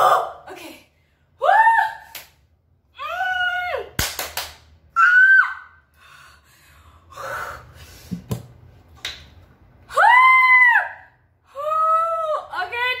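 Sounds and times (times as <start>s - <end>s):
hand claps: 4.0s - 4.7s.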